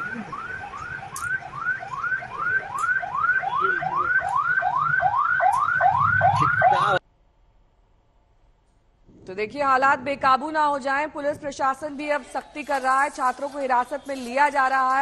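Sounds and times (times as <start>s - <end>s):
electronic siren whooping: 0.0s - 7.0s.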